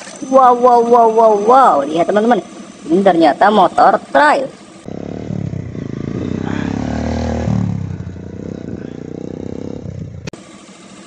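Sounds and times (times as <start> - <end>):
dirt motorcycle accelerating past: 4.9 - 10.3.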